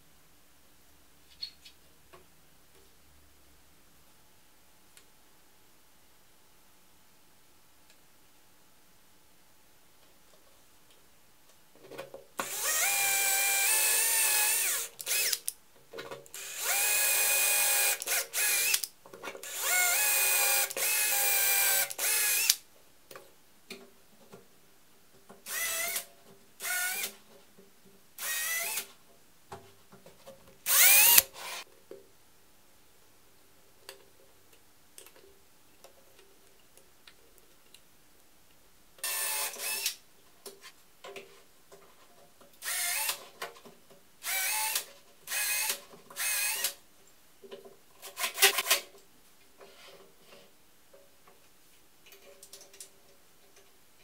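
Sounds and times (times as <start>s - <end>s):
power drill whining: 12.4s - 15.4s, 16.4s - 18.8s, 19.4s - 22.6s, 25.5s - 27.2s, 28.2s - 28.8s, 30.7s - 31.6s, 39.0s - 39.9s, 42.6s - 43.2s, 44.2s - 46.7s.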